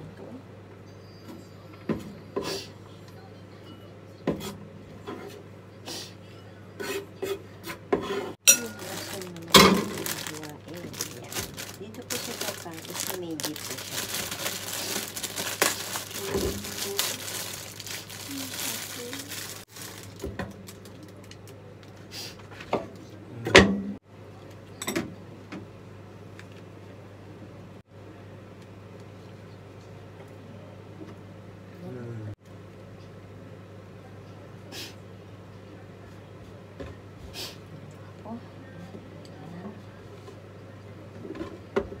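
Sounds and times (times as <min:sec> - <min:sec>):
scraping on wooden cutting board: 0:06.8 - 0:08.4.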